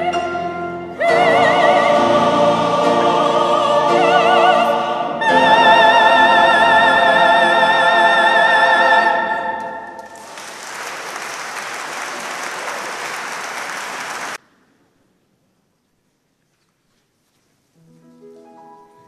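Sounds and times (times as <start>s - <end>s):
woman and men's choir singing: 0.0s - 10.2s
audience applause: 10.0s - 14.4s.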